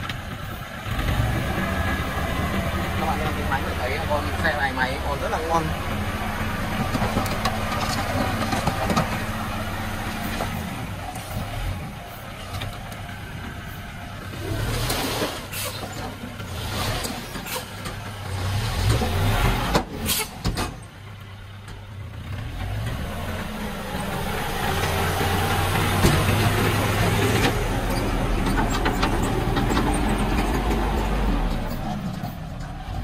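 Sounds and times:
diesel truck engine running: 0.0s - 33.0s
soil sliding out: 14.4s - 17.7s.

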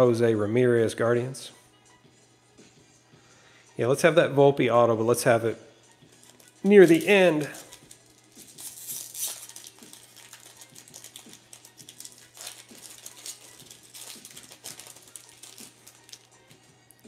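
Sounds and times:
wrapper being torn and crinkling: 6.1s - 17.0s.

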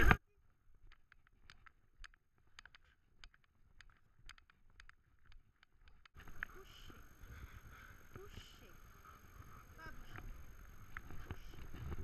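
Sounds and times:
outdoor background noise: 0.0s - 12.0s
dog claws clicking on stone: 0.8s - 6.5s.

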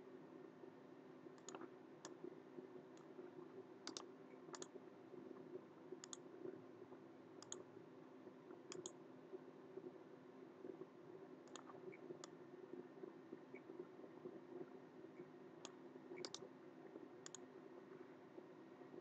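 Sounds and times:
low steady hum: 0.0s - 19.0s
computer mouse clicks: 1.4s - 2.2s, 3.8s - 4.7s, 6.0s - 6.2s, 7.4s - 7.6s, 8.7s - 9.0s, 11.4s - 12.3s, 15.6s - 16.5s, 17.2s - 17.4s.

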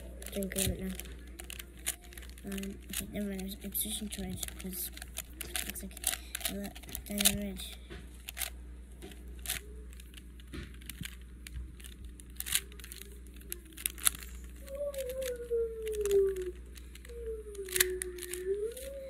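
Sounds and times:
puzzle cube layers clicking: 0.0s - 8.5s, 9.1s - 19.0s
person humming: 14.6s - 19.0s.

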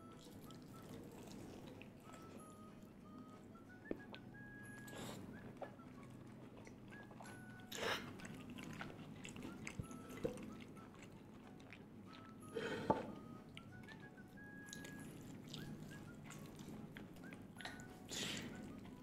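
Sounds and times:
faint background music: 0.0s - 19.0s
crunchy chewing: 5.0s - 12.4s, 13.2s - 19.0s.

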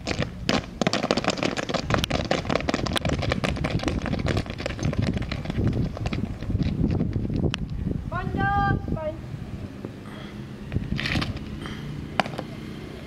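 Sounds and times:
boots stamping on asphalt: 0.0s - 7.7s, 10.7s - 12.6s.

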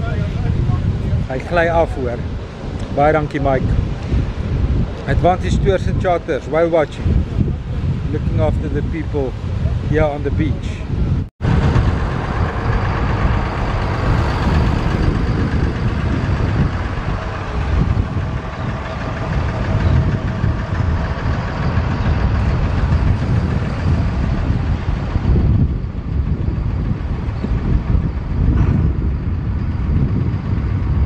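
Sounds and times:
surf and wind rushing: 0.0s - 31.0s
outboard motors idling: 11.4s - 26.2s.

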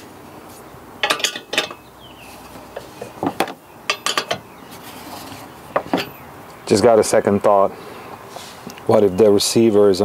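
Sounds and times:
wrench clinking against metal: 1.0s - 1.8s, 3.9s - 4.4s.

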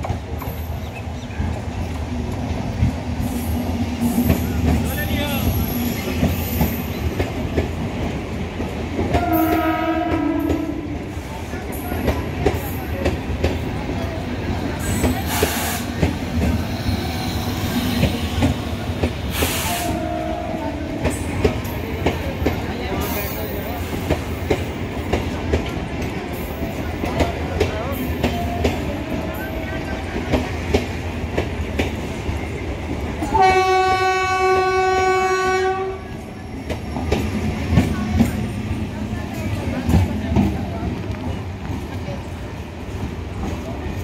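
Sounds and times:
train coaches rumbling past: 0.0s - 44.0s
train horn: 9.1s - 11.1s, 19.4s - 21.2s, 33.2s - 36.2s.

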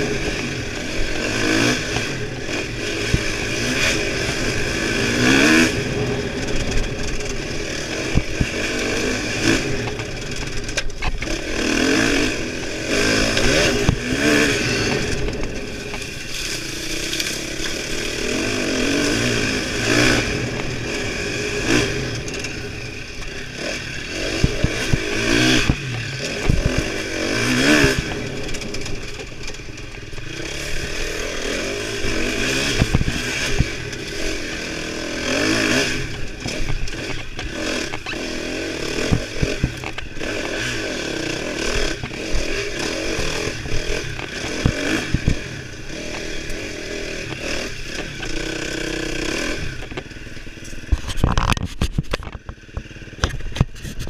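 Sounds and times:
dirt bike engine revving: 0.0s - 54.0s
bike knocks and rattles: 21.6s - 30.9s, 32.0s - 34.3s, 35.3s - 54.0s.

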